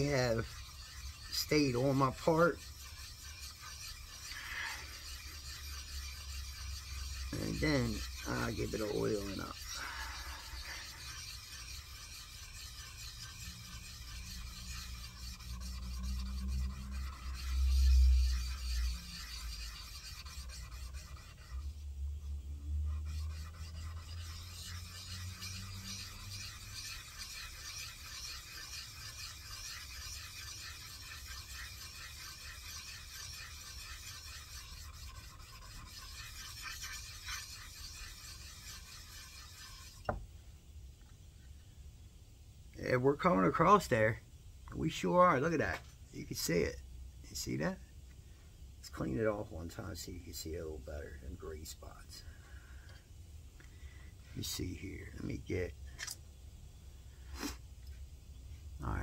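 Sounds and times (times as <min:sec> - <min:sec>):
metal scraping on sharpening stone: 0:00.0 - 0:21.7, 0:23.0 - 0:40.2.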